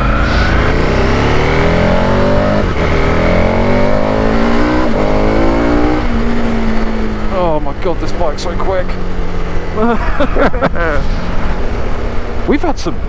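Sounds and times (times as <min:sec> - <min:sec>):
motorcycle engine accelerating: 0:00.0 - 0:13.0.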